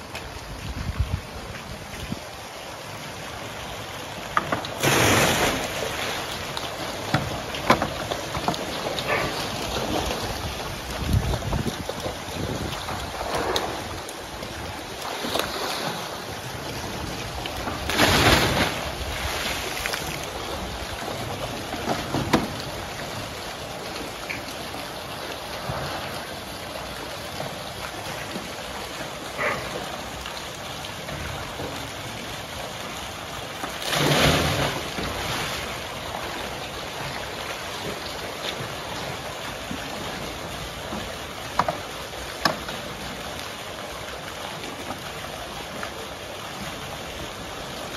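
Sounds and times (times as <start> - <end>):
crocodiles splashing in water: 3.5 - 26.6, 33.7 - 44.8
water pouring from pipe: 4.6 - 9.2.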